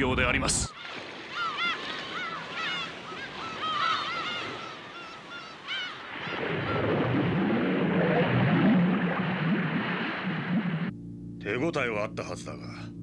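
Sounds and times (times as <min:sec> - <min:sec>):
birds honking: 0:00.6 - 0:10.6
low underwater rumble: 0:06.4 - 0:10.9.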